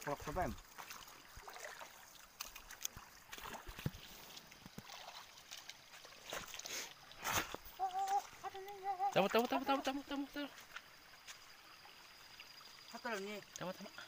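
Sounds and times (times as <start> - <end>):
faint stream trickle: 0.0 - 14.0
person wading through water: 0.0 - 14.0.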